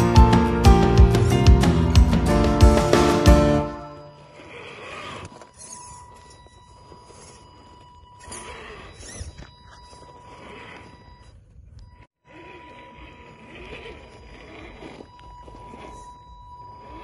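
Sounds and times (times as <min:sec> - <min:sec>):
electric drivetrain whining: 0:00.0 - 0:17.0
thin steady high tone: 0:03.8 - 0:17.0.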